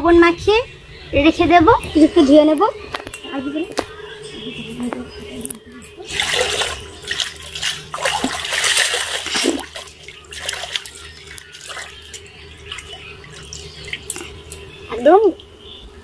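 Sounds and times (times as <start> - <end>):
water sloshing and splashing: 5.5 - 14.6.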